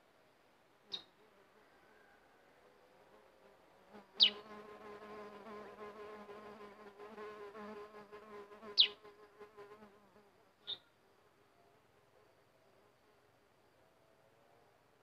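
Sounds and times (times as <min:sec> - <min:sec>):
flying insect buzzing: 0:03.9 - 0:10.3
high bird chirps: 0:04.2 - 0:04.4, 0:08.8 - 0:09.0.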